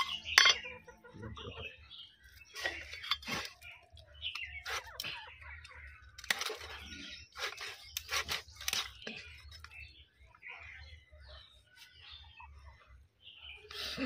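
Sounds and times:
birds chirping: 0.0s - 14.0s
blade crunching through chicken bone: 7.4s - 9.6s.

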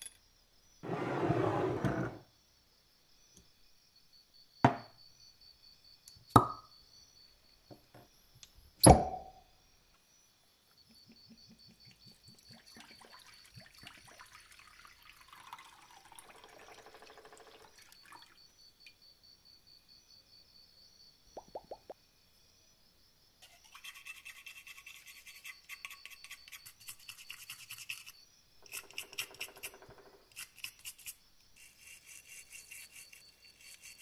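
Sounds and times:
liquid pouring and glugging: 12.3s - 18.4s.

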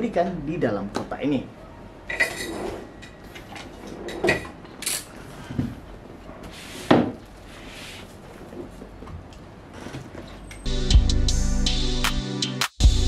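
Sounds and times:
rustling: 6.4s - 9.1s.

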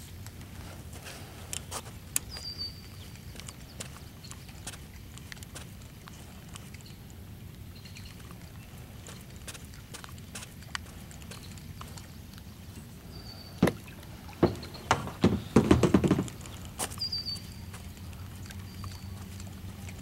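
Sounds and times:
low outdoor background: 0.0s - 20.0s
sharp knocks of gear in boat: 13.6s - 16.6s.

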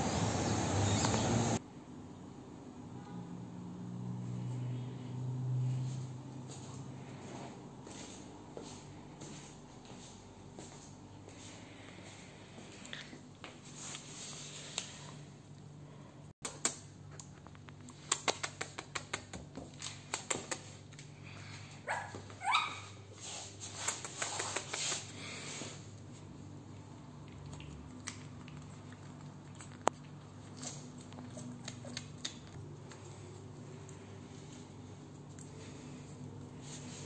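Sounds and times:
puppy claws ticking on tiles: 16.4s - 21.1s, 23.8s - 25.2s.

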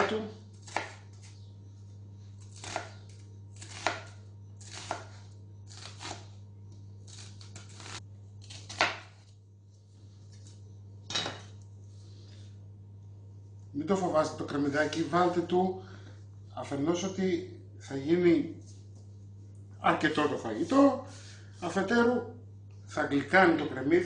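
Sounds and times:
knife chopping on wooden board: 0.0s - 1.1s, 2.6s - 3.0s, 3.6s - 5.2s, 8.5s - 9.2s.

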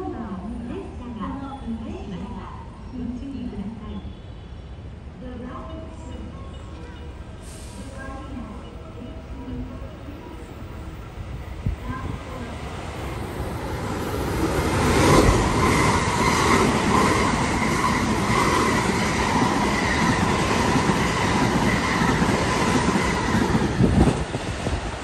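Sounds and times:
train high whine: 4.0s - 25.0s
train wheels rushing on rails: 10.5s - 25.0s.

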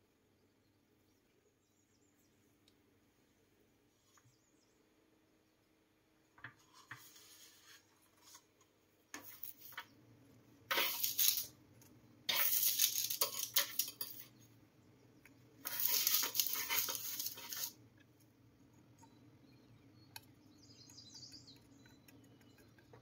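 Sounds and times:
fork scraping on baking tray: 9.2s - 9.9s, 10.7s - 11.5s, 12.3s - 14.3s, 15.6s - 17.8s
paper rustling: 10.7s - 11.5s, 12.3s - 14.2s, 15.6s - 17.8s.

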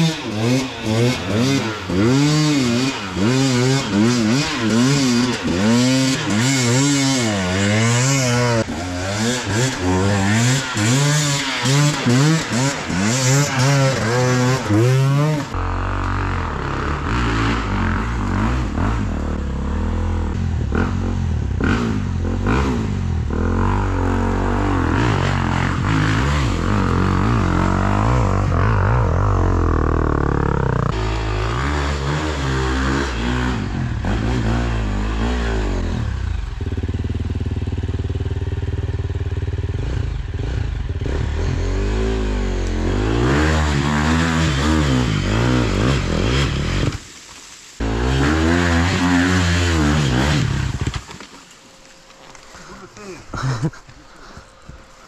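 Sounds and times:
dirt bike engines revving: 0.0s - 55.0s.

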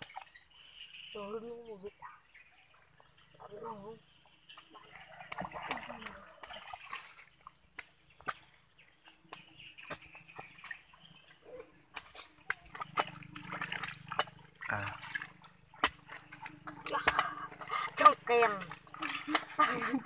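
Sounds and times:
wet mud squelching by hand: 4.6s - 20.0s.

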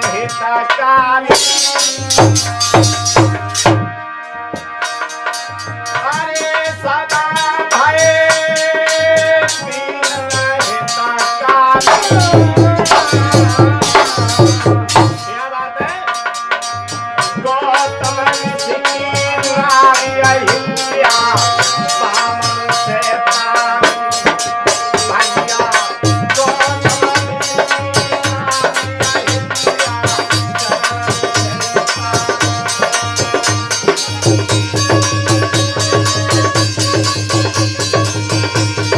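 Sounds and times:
hand drum beating: 0.0s - 38.9s
harmonium chords: 0.0s - 38.9s
jingling percussion: 0.0s - 38.9s
man singing: 0.0s - 38.9s.

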